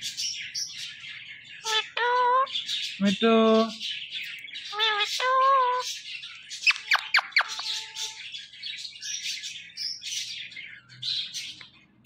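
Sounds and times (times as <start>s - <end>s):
parakeet scratchy chatter: 1.6s - 3.8s, 4.6s - 6.0s, 6.6s - 8.4s
parakeet whistled chirps: 6.6s - 8.2s.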